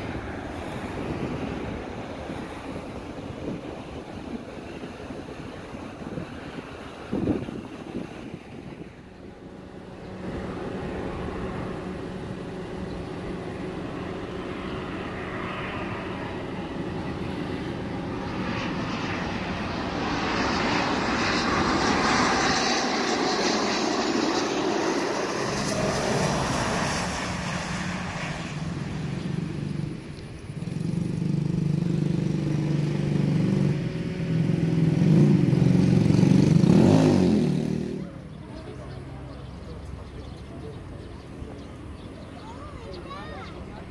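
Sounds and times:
jet engines rushing: 0:00.0 - 0:43.9.

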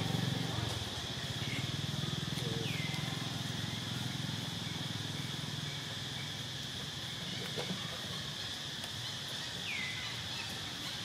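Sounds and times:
small engine running: 0:00.0 - 0:08.2.

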